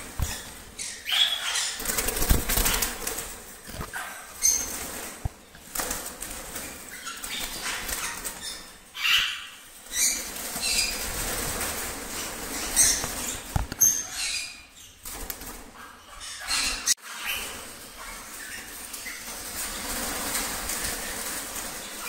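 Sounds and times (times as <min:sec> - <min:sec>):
birds flapping wings: 0:01.8 - 0:08.8, 0:09.8 - 0:13.9, 0:15.0 - 0:15.7, 0:17.4 - 0:22.0.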